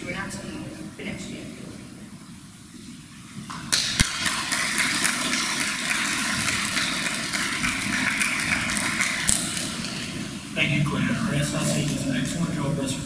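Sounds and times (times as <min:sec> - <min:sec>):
audience clapping: 0:03.5 - 0:10.3, 0:11.8 - 0:12.5.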